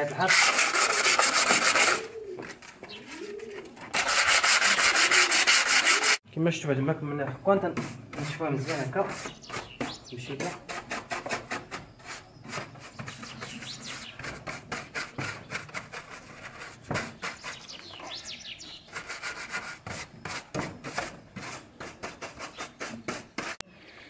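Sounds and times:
sandpaper rasping on wood: 0.0s - 2.1s, 3.1s - 6.2s, 7.8s - 17.8s, 18.6s - 23.6s
birds chirping: 2.2s - 3.8s, 9.0s - 10.6s, 11.8s - 14.4s, 17.1s - 19.1s.

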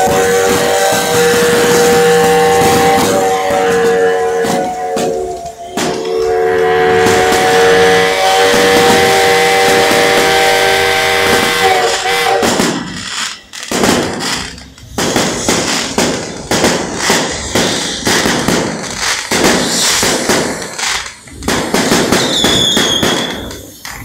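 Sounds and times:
high whistle: 0.0s - 14.4s, 21.9s - 24.0s
fireworks bangs and crackling: 0.0s - 24.0s.

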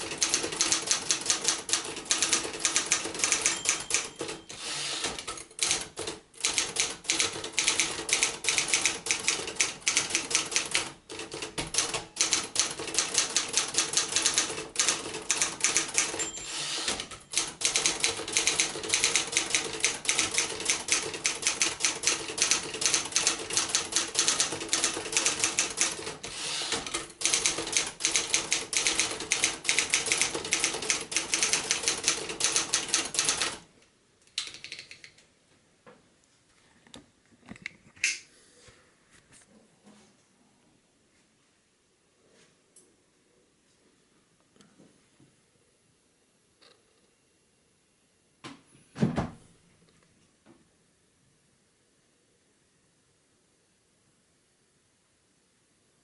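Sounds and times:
typewriter typing: 0.0s - 33.6s.

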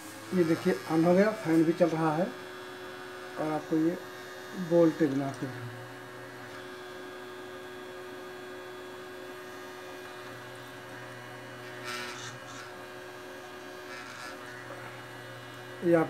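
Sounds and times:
cooling fan humming: 0.0s - 16.0s
brief scrape: 11.7s - 12.8s.

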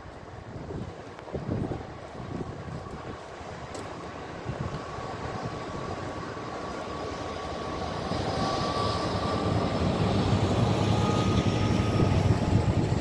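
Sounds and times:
diesel locomotive passing: 0.1s - 13.0s.

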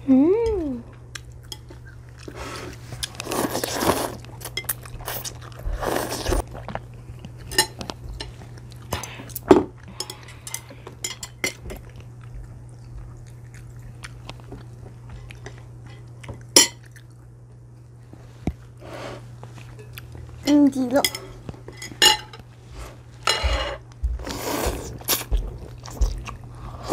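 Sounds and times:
noodles slurped and chewed: 2.0s - 7.4s
chopsticks clinking on bowls: 7.5s - 9.2s, 9.9s - 11.9s, 19.7s - 22.4s.

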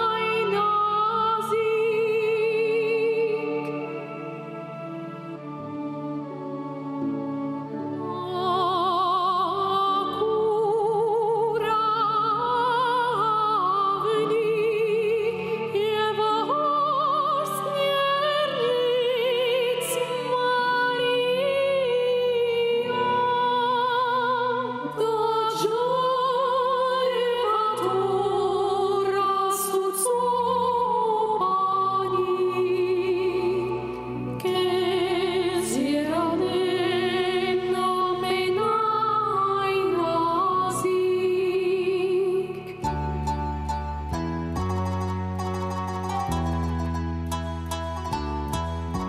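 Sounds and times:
soft instrumental backing: 0.0s - 49.0s
women singing operatically: 8.1s - 42.8s.

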